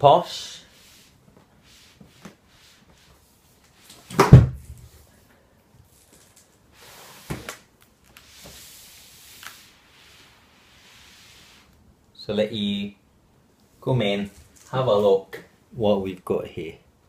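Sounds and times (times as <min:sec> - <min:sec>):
cardboard box thump: 0:04.2 - 0:04.7.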